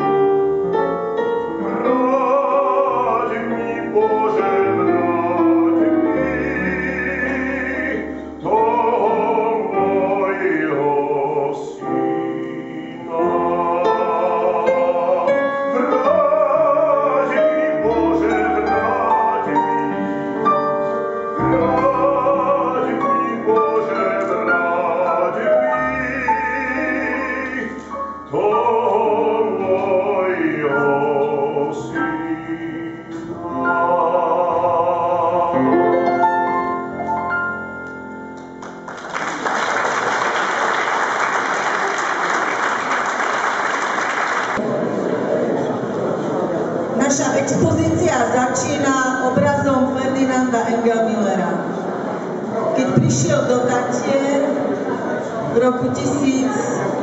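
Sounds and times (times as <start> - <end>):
piano accompaniment: 0.0 - 43.4, 44.0 - 57.0
man singing operatically: 1.5 - 20.7, 21.3 - 37.0.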